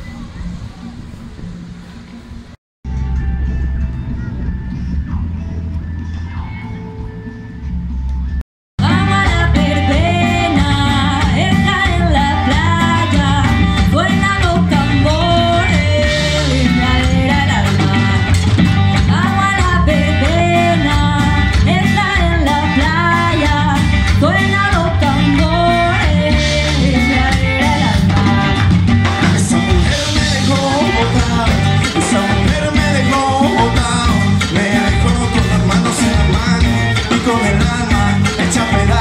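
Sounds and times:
bass: 0.0 - 39.0
drum kit: 2.8 - 39.0
congas: 2.9 - 39.0
electric guitar: 2.9 - 39.0
woman singing into microphone: 8.8 - 32.6.

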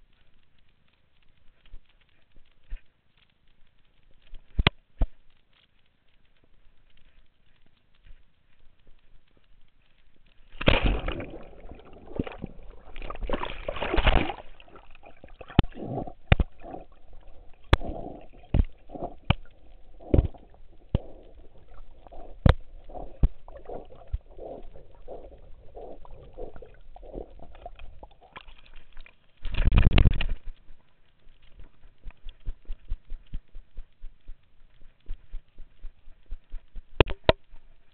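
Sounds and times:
water splashing and sloshing: 10.3 - 33.4.

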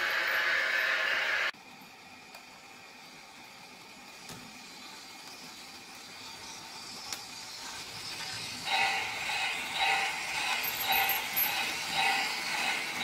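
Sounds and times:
model train clattering past: 3.8 - 13.0.

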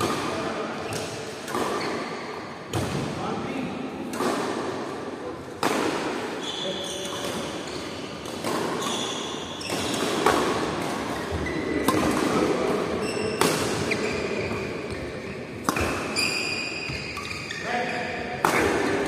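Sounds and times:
rackets hitting shuttlecock: 0.0 - 3.1, 4.0 - 17.4, 18.3 - 19.0
sneakers squeaking on court: 0.8 - 2.9, 6.4 - 10.4, 11.1 - 12.0, 13.0 - 18.6.

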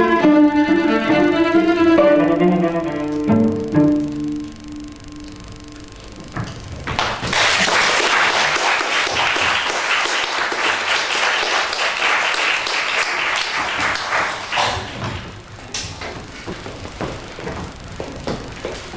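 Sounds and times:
audience applauding: 6.9 - 15.4.

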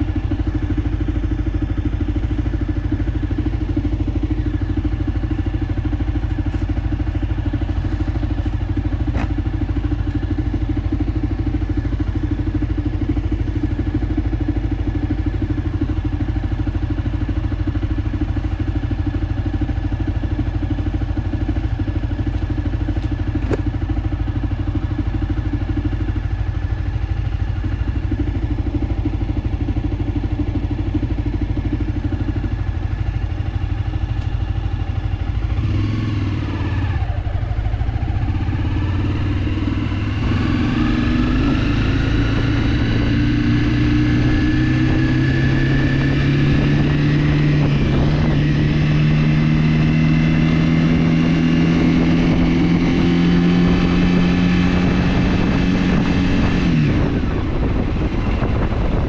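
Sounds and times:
motorcycle engine running: 0.0 - 59.0.

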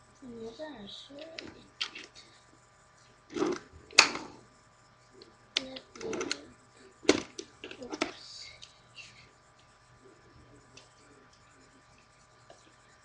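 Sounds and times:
plastic toy clicking and clattering: 5.6 - 6.4.

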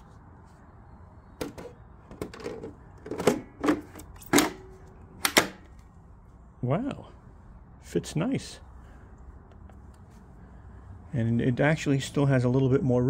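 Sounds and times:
battery pack knocking and scraping: 1.4 - 4.6.

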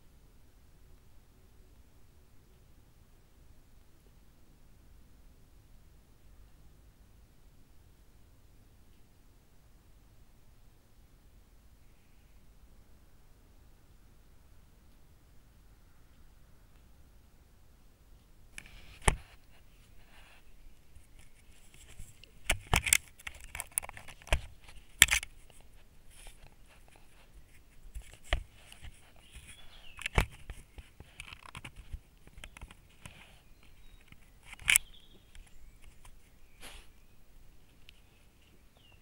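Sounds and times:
fur and claws scraping casing: 18.6 - 36.8.

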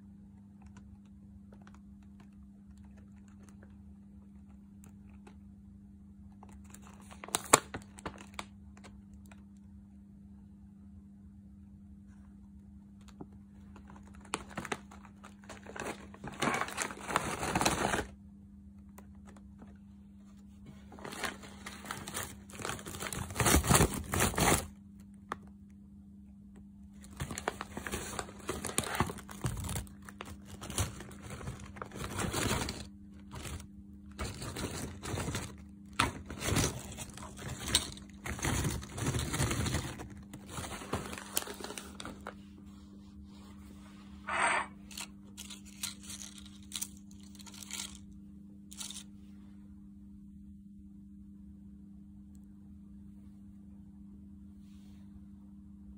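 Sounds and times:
chip bag crinkling: 6.4 - 9.4, 13.5 - 18.2, 20.9 - 24.8, 27.0 - 42.4, 44.4 - 48.1, 48.7 - 49.1
bag tearing open: 14.3 - 18.1, 21.0 - 24.7, 27.1 - 42.3.

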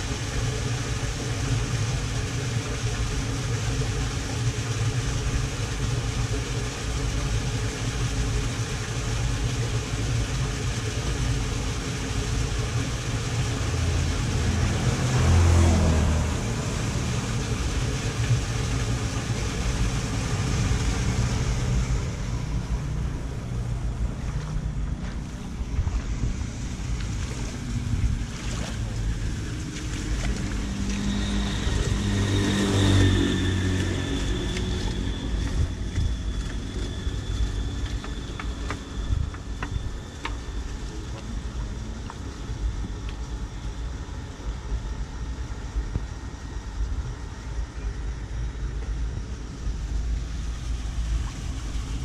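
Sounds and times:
vehicle engine idling: 0.0 - 52.0
vehicle passing: 13.7 - 17.8, 27.2 - 35.9.

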